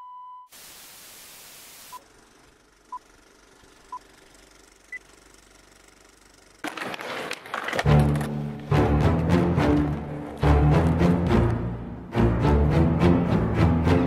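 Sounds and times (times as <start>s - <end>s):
faint hiss: 0.5s - 2.6s.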